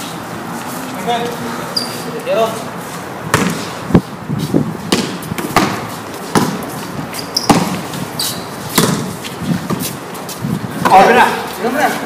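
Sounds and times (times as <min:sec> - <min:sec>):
shoe squeaks: 0:01.7 - 0:02.2, 0:05.2 - 0:10.5
basketball bouncing on court: 0:03.3 - 0:03.7, 0:04.9 - 0:06.7, 0:07.4 - 0:07.9, 0:08.7 - 0:09.1.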